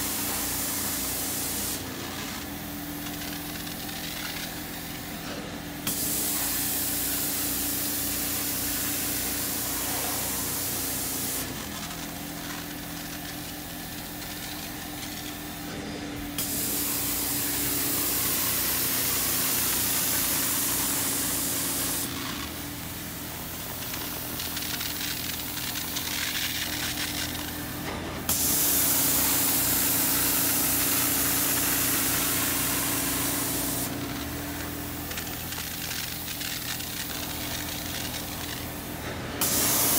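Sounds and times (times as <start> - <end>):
spray wand hissing: 0.0 - 1.9, 5.8 - 11.6, 16.4 - 22.2, 28.3 - 38.7, 39.4 - 39.9
carpet extractor motor hum: 4.6 - 24.6, 26.7 - 39.9.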